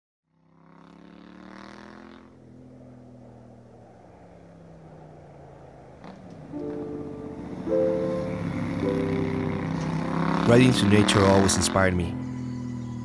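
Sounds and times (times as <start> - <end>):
motorcycle engine running: 0.3 - 5.3, 6.0 - 13.0
music notes: 6.5 - 10.2.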